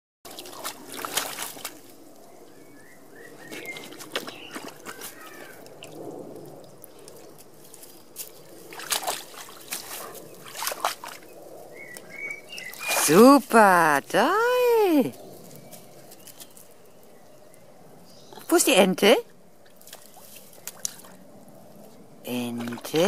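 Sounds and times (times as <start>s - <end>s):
dog splashing in pond water: 0.3s - 13.9s, 18.5s - 21.4s, 22.2s - 23.0s.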